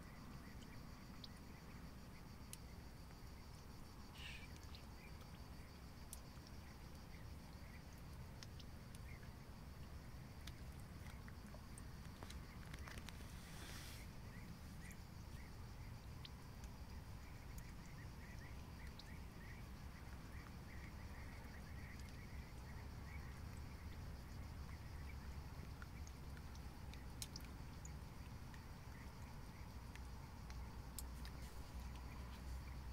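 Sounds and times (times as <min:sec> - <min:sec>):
brief hiss: 0:13.1 - 0:14.1.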